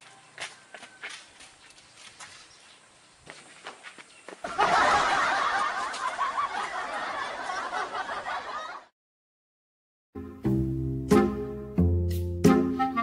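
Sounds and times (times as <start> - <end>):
canned audience laughter: 4.5 - 8.9.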